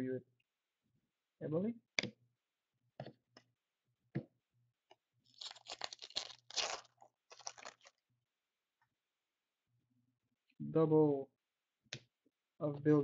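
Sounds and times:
plastic wrapper tearing and crinkling: 5.3 - 8.0.

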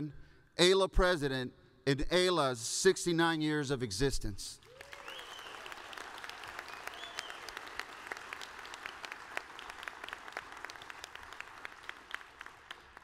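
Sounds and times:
audience applause: 4.6 - 13.0.

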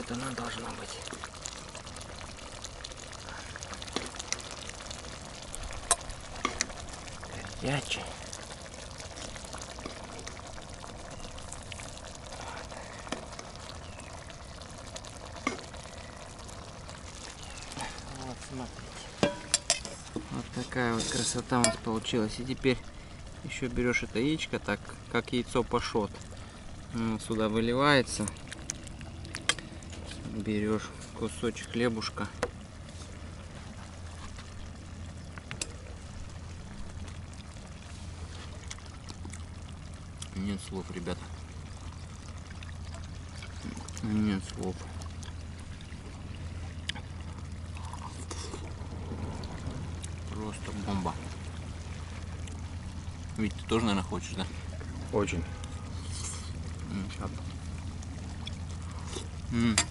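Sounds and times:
steady low hum: 0.0 - 59.9
stew sizzling and bubbling: 0.0 - 59.9
faint wash: 40.4 - 59.5.

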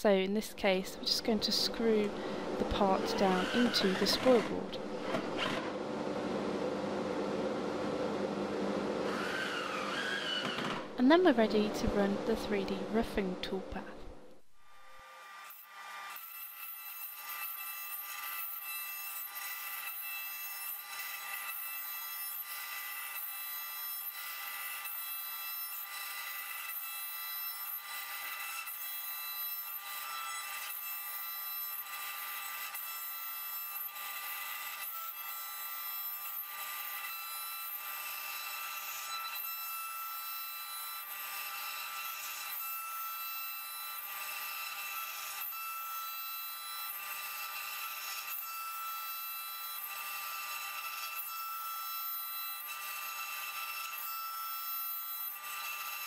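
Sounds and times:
bit cutting wood: 0.7 - 5.8, 9.0 - 13.8, 14.7 - 56.0
router spindle whine: 0.9 - 6.5, 7.5 - 13.0.

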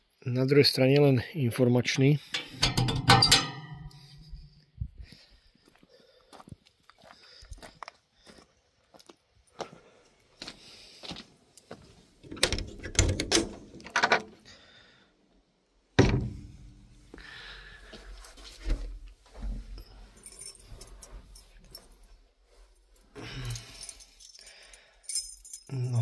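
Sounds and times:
handling clicks and knocks: 2.2 - 4.3
heavy thump: 16.0 - 16.8.

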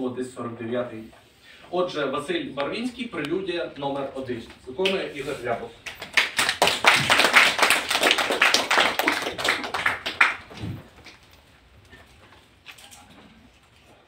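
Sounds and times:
audience applauding: 5.8 - 11.3.

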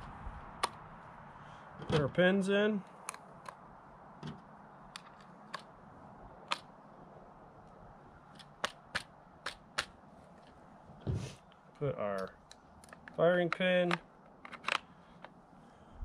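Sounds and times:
sharp metallic clicks and taps: 8.3 - 10.0, 12.1 - 15.4.

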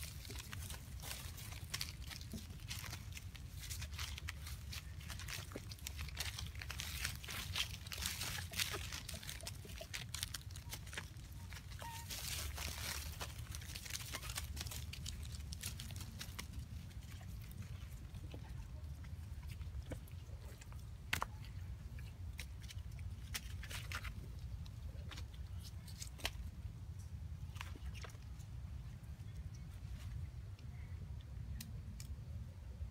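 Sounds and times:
feet crunching through dry leaves: 0.0 - 17.5
steady low rumble: 0.0 - 32.9.

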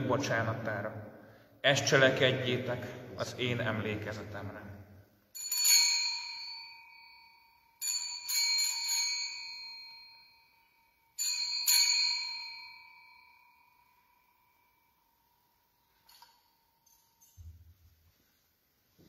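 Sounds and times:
altar bells ringing: 5.3 - 17.6.

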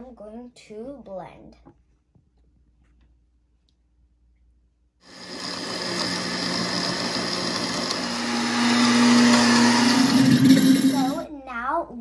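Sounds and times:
blender motor running: 5.0 - 11.2.

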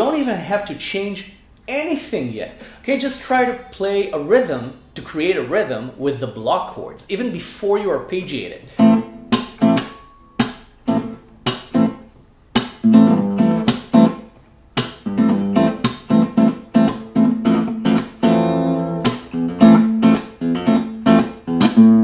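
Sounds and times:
acoustic guitar fingerstyle chords: 8.7 - 22.0.

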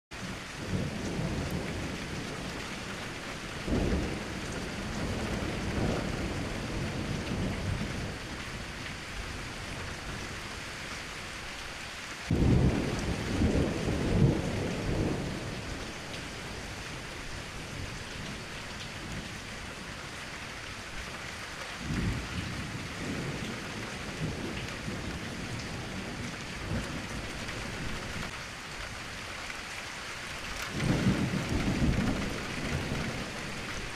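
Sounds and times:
steady rain: 0.1 - 33.9
thunder rumbling: 0.2 - 10.5, 12.3 - 20.1, 21.8 - 28.3, 30.7 - 33.9.

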